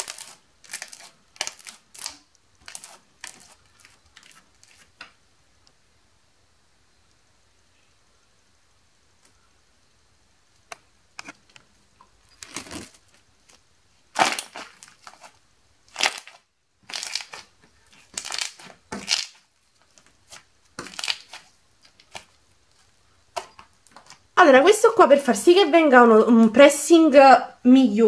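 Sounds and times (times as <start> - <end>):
slime squishing and crackling: 0.0 - 5.0, 12.4 - 13.2, 14.1 - 24.3.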